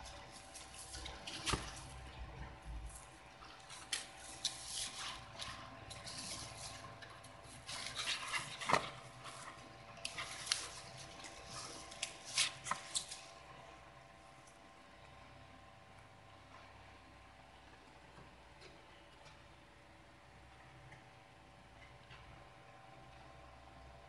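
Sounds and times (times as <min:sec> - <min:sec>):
wrapping sheet rustling and crinkling: 0:00.0 - 0:13.4
faint steady hum: 0:00.0 - 0:24.0.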